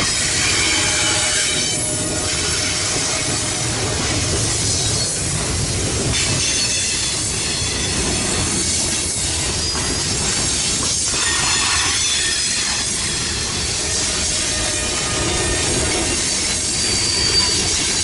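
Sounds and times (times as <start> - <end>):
steel wheels on rail: 0.0 - 18.0
high-pitched wheel squeal: 11.2 - 17.8.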